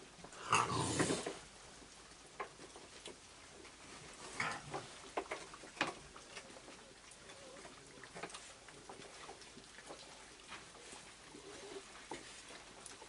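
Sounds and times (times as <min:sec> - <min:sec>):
raccoons eating with crunches: 0:00.0 - 0:13.0
raccoon grunt: 0:00.3 - 0:01.4, 0:04.3 - 0:04.9.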